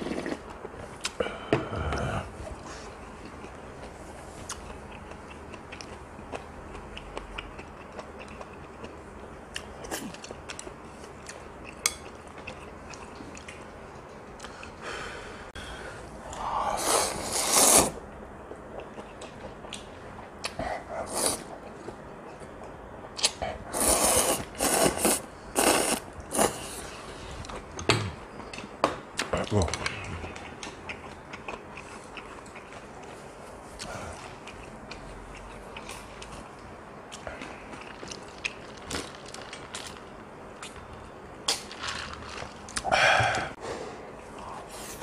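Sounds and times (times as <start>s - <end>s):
soft chewing: 1.9s - 14.8s, 18.4s - 23.6s, 27.0s - 41.1s
noodles slurped: 16.8s - 18.0s, 23.7s - 26.8s.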